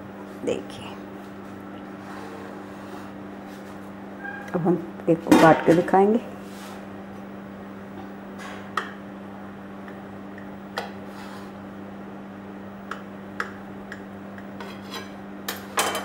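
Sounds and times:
knife scraping ceramic plate: 14.6s - 15.2s.

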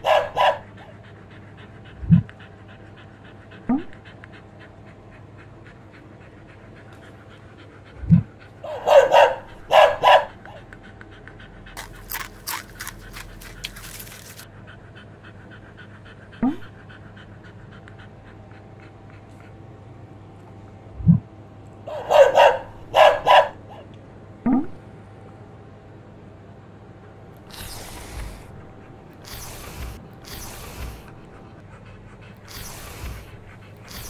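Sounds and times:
dog barking: 0.0s - 0.9s, 8.6s - 10.6s, 21.9s - 23.8s
dog panting: 0.0s - 20.8s, 21.9s - 23.8s, 27.0s - 34.0s
dog whining: 27.4s - 31.7s, 32.3s - 34.0s.

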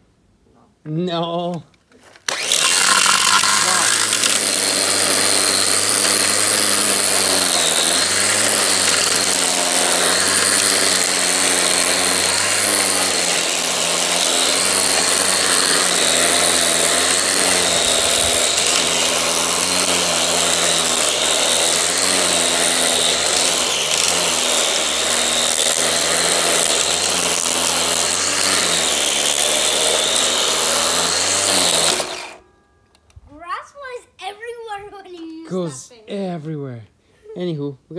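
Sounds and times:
string trimmer cutting grass: 2.1s - 32.4s.

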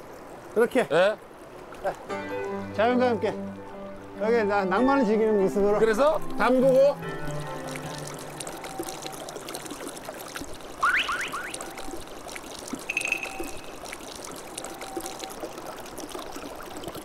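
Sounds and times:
river water trickling over stones: 0.0s - 17.0s
short high steady tone: 12.9s - 13.8s.

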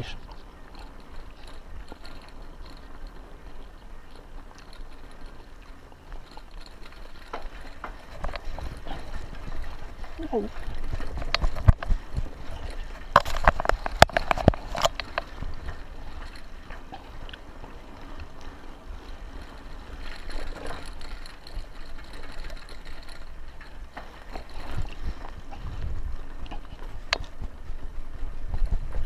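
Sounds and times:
bicycle tyres on dirt: 0.0s - 29.0s
bike rattling over bumps: 0.0s - 29.0s
wind on microphone: 7.4s - 23.6s, 24.2s - 29.0s.

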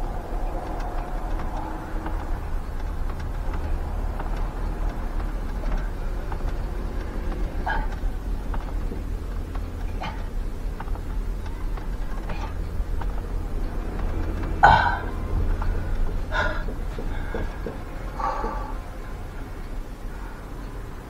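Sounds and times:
idling engine hum: 0.0s - 21.0s
faint knocks: 5.0s - 19.0s.

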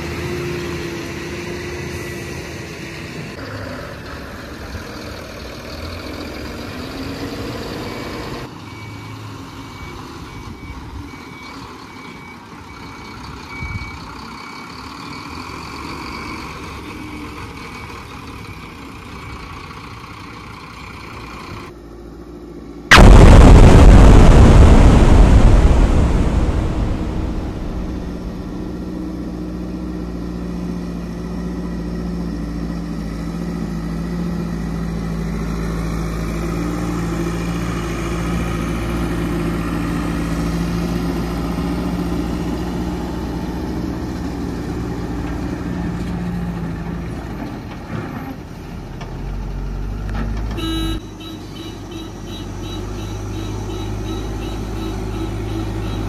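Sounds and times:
loud crash: 22.9s - 29.5s.

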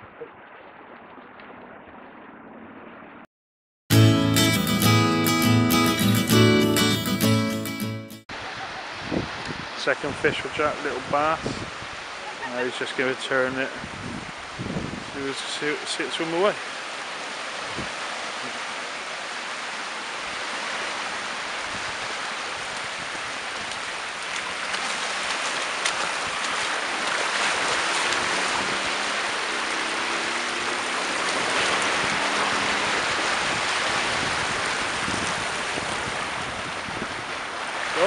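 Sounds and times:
small waves washing on beach: 8.3s - 38.0s.

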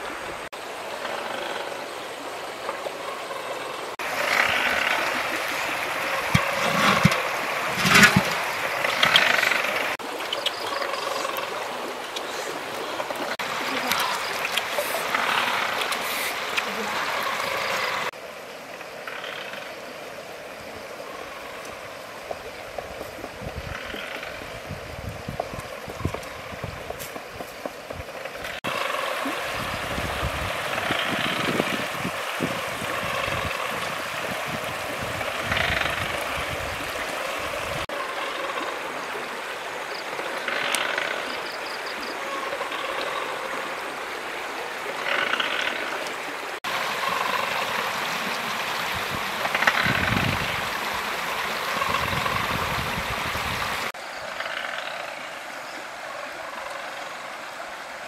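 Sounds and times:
river water flowing: 0.0s - 58.0s.

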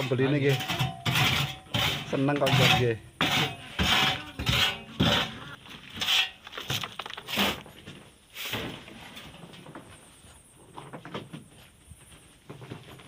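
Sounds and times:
shovel scraping sand on metal: 0.0s - 7.7s, 8.3s - 8.8s.

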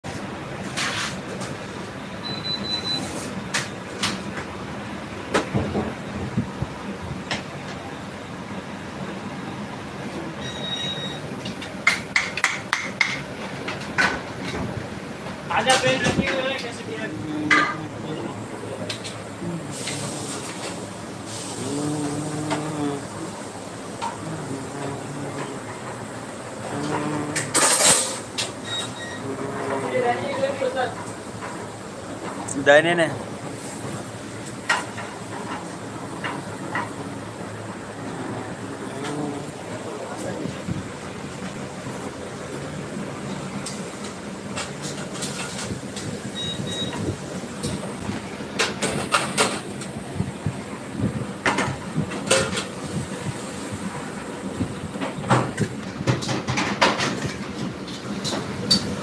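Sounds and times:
gas burners rushing: 0.0s - 59.0s
short high beeps: 2.2s - 3.1s, 10.4s - 11.2s
metal pans and utensils clinking: 26.8s - 29.9s.

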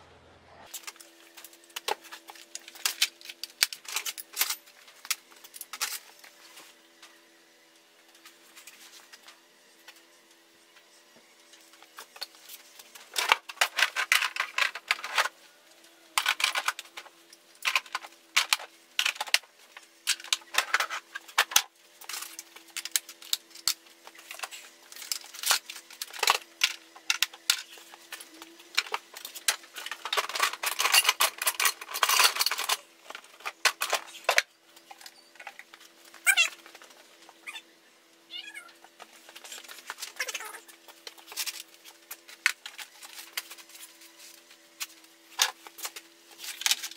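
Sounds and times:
tools clattering on workbench: 23.5s - 35.6s.

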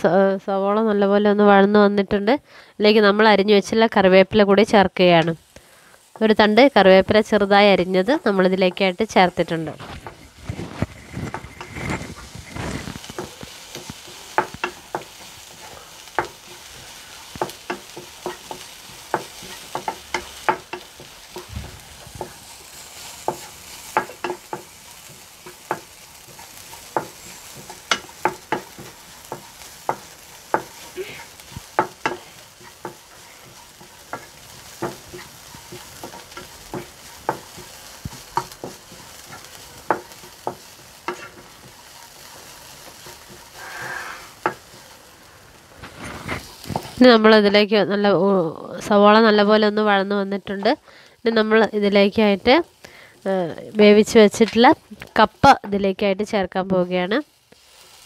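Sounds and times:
onions sizzling in a pan: 0.6s - 58.0s
spatula scraping and tapping pan: 9.5s - 45.1s, 45.8s - 47.6s.

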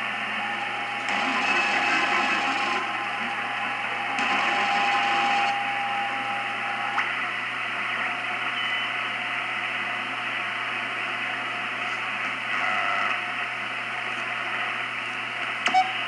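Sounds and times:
radio band hiss: 0.0s - 16.0s
whistling carrier tone: 8.6s - 9.0s.

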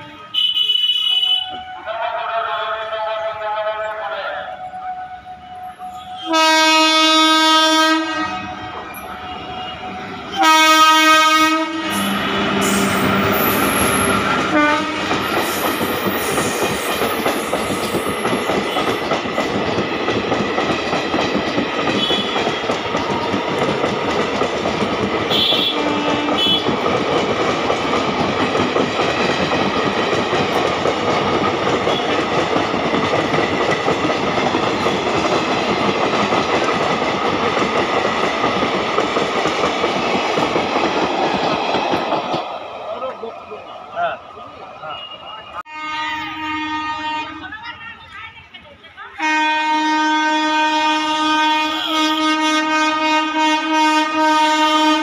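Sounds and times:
train horn blasts: 0.0s - 2.4s, 4.5s - 15.6s, 21.9s - 22.7s, 25.3s - 26.8s, 31.8s - 32.3s, 44.9s - 47.6s, 49.2s - 55.0s
clickety-clack of train coaches: 0.0s - 4.4s, 6.0s - 55.0s
train passing at speed: 0.0s - 55.0s.

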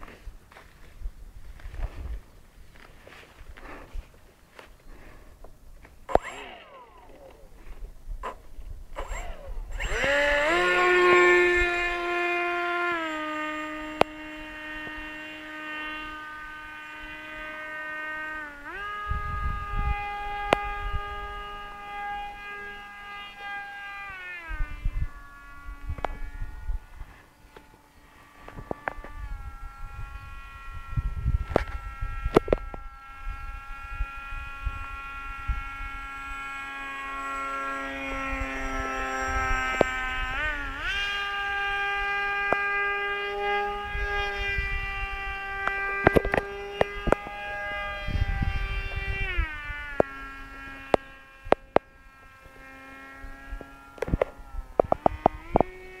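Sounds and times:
wind buffeting microphone: 0.0s - 2.8s, 18.5s - 23.2s, 28.3s - 56.0s
model plane motor whine: 0.0s - 56.0s
sharp clicks: 5.8s - 7.4s
sharp click: 6.1s - 6.5s.

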